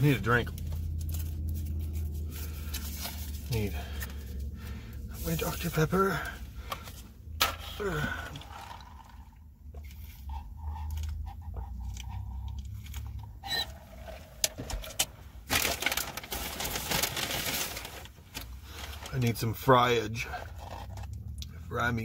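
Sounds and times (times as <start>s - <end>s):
rustling: 15.5s - 19.3s.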